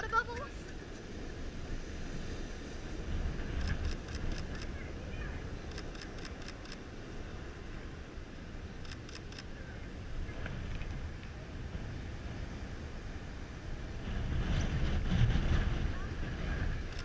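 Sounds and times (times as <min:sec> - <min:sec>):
wind and surf rumble: 0:00.0 - 0:17.0
camera shutter clicks: 0:03.6 - 0:04.7, 0:05.7 - 0:06.8, 0:08.8 - 0:09.5.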